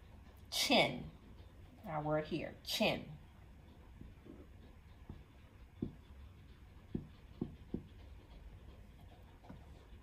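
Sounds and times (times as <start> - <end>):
marker strokes on paper: 2.8 - 10.0
marker tip tapping: 5.0 - 6.2, 6.8 - 8.0.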